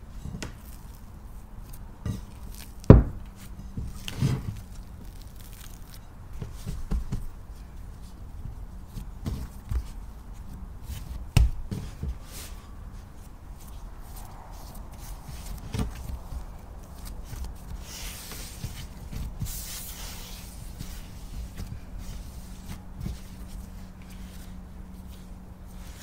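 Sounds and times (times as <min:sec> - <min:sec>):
dough thumping on wooden table: 0:02.9 - 0:03.2, 0:11.3 - 0:12.1.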